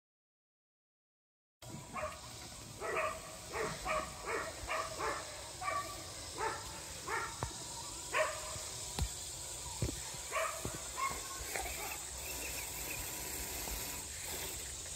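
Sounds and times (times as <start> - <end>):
dog barking: 2.0 - 2.2, 2.8 - 7.4, 8.1 - 8.6, 10.3 - 12.0.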